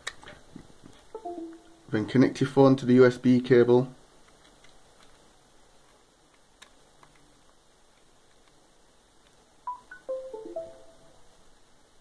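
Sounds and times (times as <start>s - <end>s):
electronic beeping chime: 9.7s - 11.2s.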